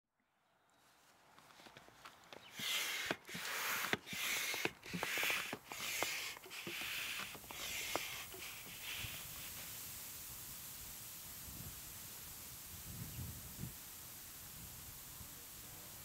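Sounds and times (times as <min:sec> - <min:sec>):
hand pump air whooshes: 0:02.4 - 0:10.0.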